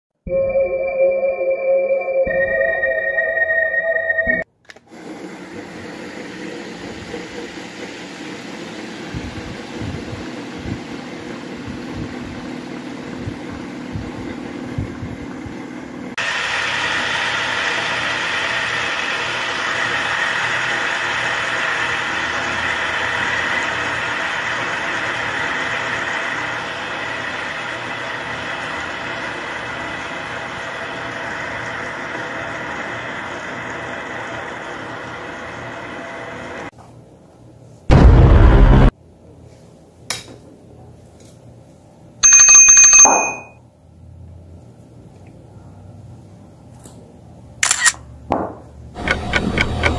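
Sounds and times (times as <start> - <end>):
high whine: 0.3 - 4.5, 37.9 - 38.9
desk fans whirring: 4.8 - 42.2.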